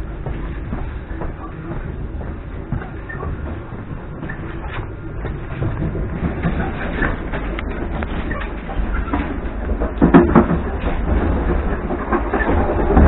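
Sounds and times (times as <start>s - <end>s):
train wheels rumbling on rails: 0.0s - 13.0s
loud wheel knocks: 9.9s - 13.0s.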